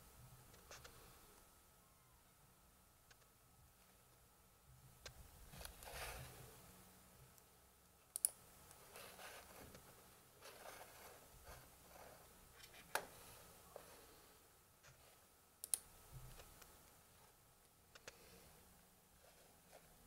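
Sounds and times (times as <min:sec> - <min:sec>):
soft rubbing: 0:05.4 - 0:06.6, 0:08.8 - 0:15.3, 0:19.1 - 0:20.0.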